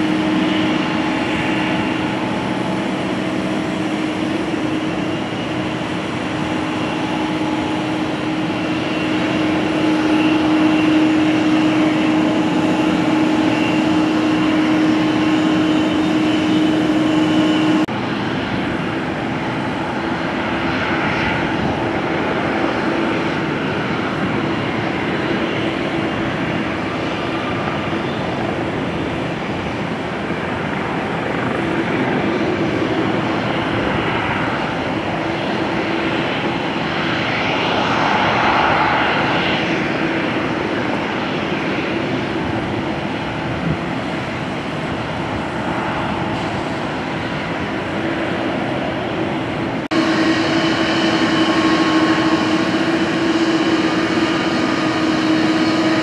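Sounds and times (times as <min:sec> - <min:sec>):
jet engines idling hum and whine: 0:00.0 - 0:56.0
rough hissy jet noise: 0:44.0 - 0:56.0.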